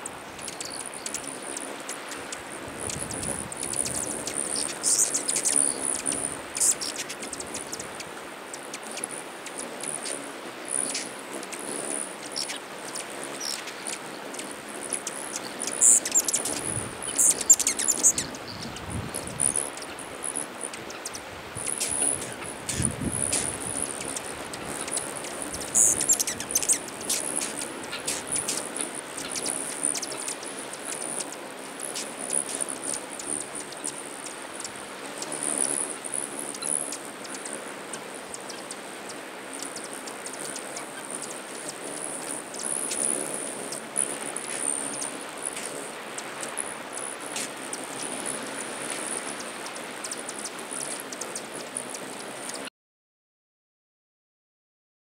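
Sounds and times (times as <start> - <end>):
hummingbird chips and twitters: 0.2 - 8.1, 8.7 - 38.8
squeaky bird chatter: 0.4 - 7.8, 15.0 - 30.3
high-pitched wing buzz: 10.8 - 30.7.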